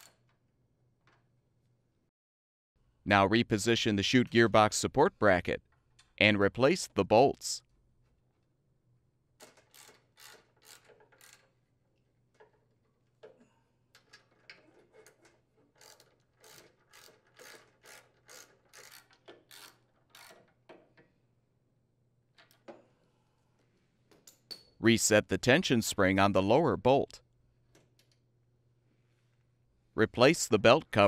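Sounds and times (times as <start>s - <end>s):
ratchet wrench clicking: 9.4s - 11.6s, 14.2s - 20.6s.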